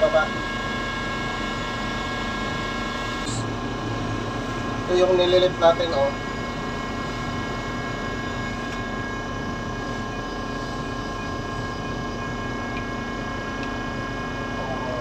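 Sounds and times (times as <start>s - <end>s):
high whining tones: 0.0s - 15.0s
steady engine drone: 0.0s - 15.0s.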